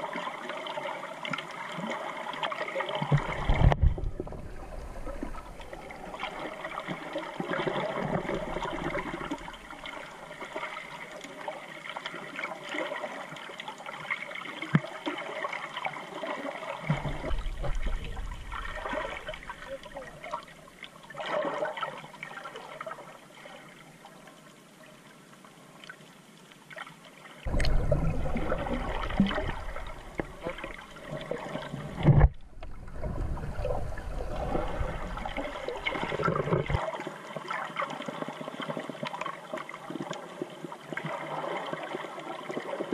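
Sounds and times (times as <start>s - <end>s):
low rumble of water: 0.0s - 42.9s
water sloshing: 16.8s - 20.5s, 27.5s - 37.1s.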